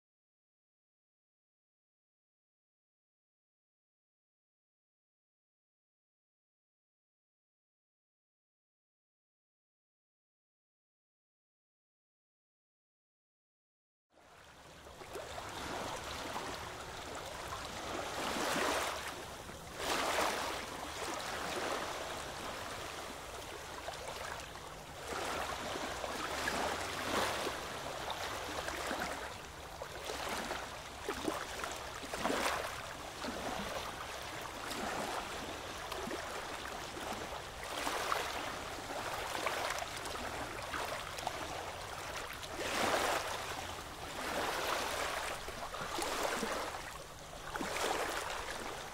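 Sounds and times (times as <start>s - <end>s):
sea waves lapping against rocks: 14.8s - 48.9s.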